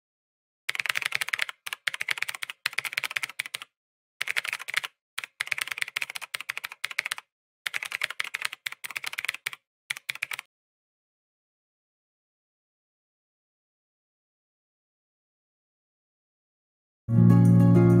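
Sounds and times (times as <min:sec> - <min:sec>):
rapid keyboard key clicks: 0:00.7 - 0:10.5.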